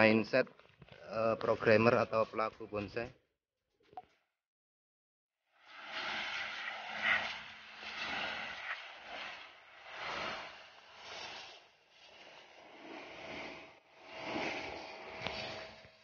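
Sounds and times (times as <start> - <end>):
pressure washer jet hissing on wood: 5.8 - 16.0.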